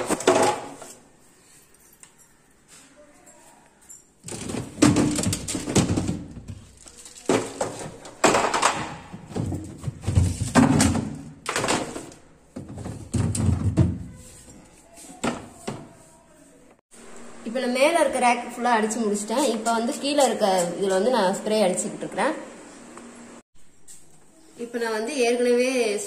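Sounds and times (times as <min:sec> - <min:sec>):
plastic knocking and scraping: 0:04.3 - 0:14.1.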